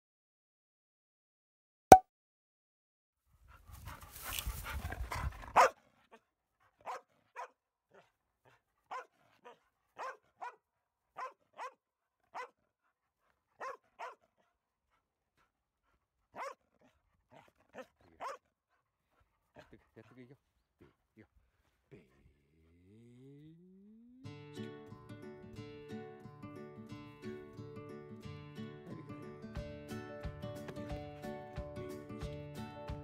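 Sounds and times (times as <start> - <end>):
rustle: 3.6 - 5.6
dog barking: 5.5 - 6.2, 6.8 - 12.7, 13.5 - 14.6, 16.3 - 18.5, 19.5 - 20.1.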